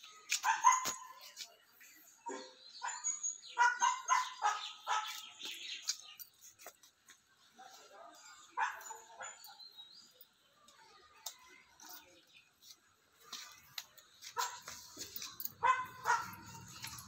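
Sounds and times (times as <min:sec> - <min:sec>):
dog barking: 0:00.4 - 0:01.3, 0:02.3 - 0:05.3, 0:08.6 - 0:09.6, 0:14.4 - 0:14.8, 0:15.6 - 0:17.0.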